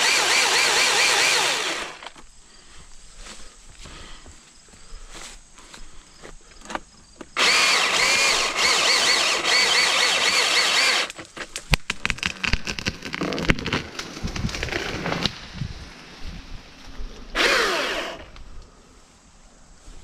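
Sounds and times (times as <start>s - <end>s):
chainsaw cutting log: 0.0s - 2.2s, 7.4s - 11.2s, 17.3s - 18.4s.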